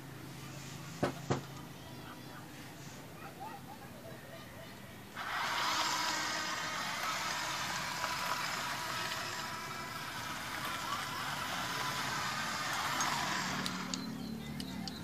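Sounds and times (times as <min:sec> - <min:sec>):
small gear motors whirring: 0:05.1 - 0:15.0.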